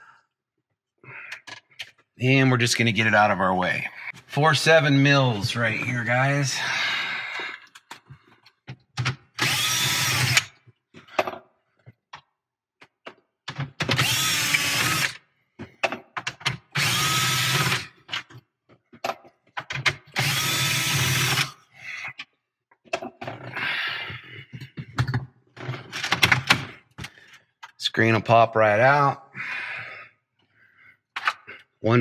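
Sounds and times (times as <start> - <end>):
cordless drill running: 9.4 - 10.6, 14.0 - 15.2, 16.8 - 18.0, 20.2 - 21.6.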